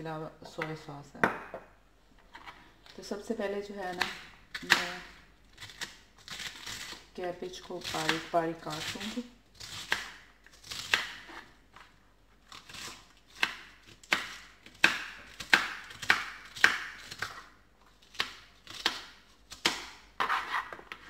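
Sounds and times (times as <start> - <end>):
knife chopping cabbage on a board: 7.8 - 11.5, 12.6 - 20.9.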